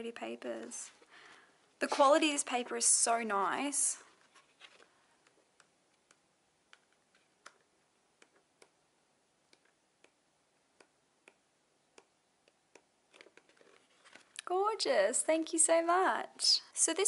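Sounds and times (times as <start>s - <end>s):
notebook pages turning: 4.1s - 8.5s, 13.1s - 14.5s.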